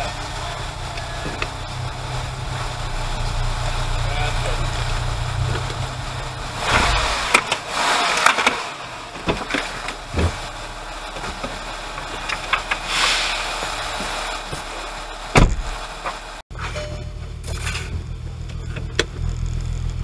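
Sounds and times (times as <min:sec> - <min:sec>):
car engine idling: 0:00.0 - 0:20.0
bursts of hiss: 0:06.3 - 0:08.8, 0:12.7 - 0:14.5
loud thump: 0:06.6 - 0:07.5, 0:15.4 - 0:15.8.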